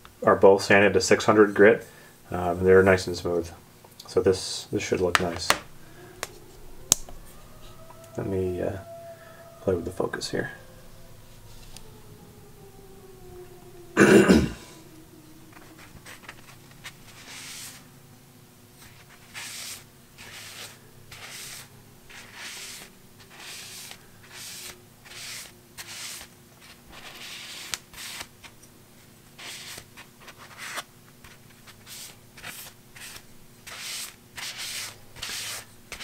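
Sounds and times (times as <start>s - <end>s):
paper towel wiping wood: 16.0s - 17.8s, 18.8s - 28.3s.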